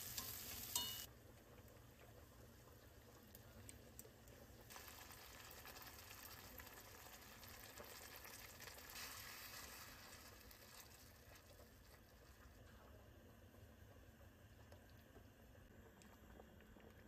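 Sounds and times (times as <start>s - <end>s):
sauce sizzling in a frying pan: 0.0s - 12.5s.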